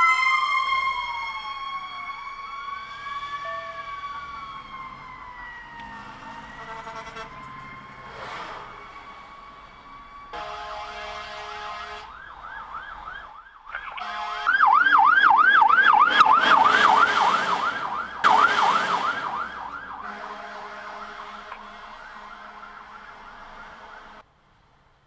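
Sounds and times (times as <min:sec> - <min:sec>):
fire truck siren yelping: 0:00.0 - 0:24.2
horn blast: 0:06.4 - 0:08.8, 0:10.3 - 0:12.2, 0:13.9 - 0:15.0, 0:16.0 - 0:24.2.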